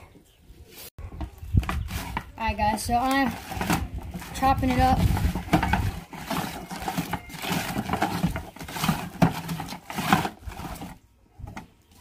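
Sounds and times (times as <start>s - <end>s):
cabbage shredding on blades: 3.0s - 11.0s.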